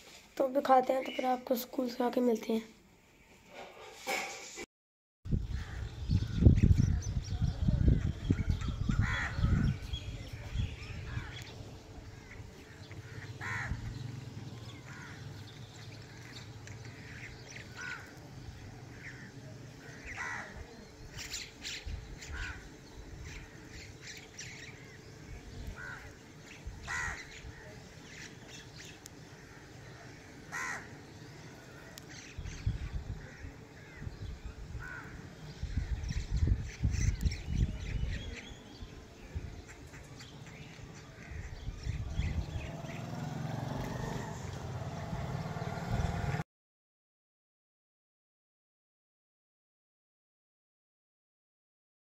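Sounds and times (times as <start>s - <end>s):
wind buffeting microphone: 5.3s - 14.0s, 32.4s - 39.8s, 41.3s - 43.2s
crows cawing: 9.0s - 9.7s, 12.2s - 13.9s, 14.7s - 15.3s, 17.0s - 18.2s, 18.9s - 20.6s, 25.8s - 26.2s, 26.8s - 27.6s, 29.3s - 32.3s, 33.2s - 34.1s, 34.8s - 35.2s.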